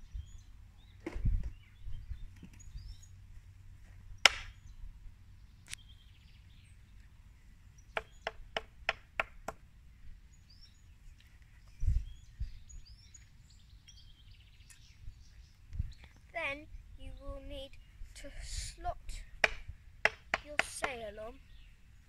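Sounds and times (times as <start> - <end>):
faint bird chirps: 10.0 - 18.4.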